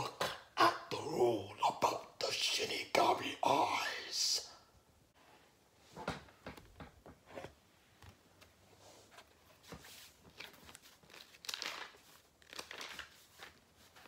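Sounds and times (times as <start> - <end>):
notebook pages rustling: 7.2 - 14.0.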